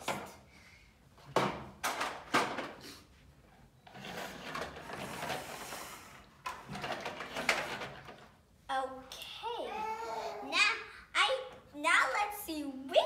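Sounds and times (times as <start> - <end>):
toy trucks rolling on table: 3.8 - 8.4.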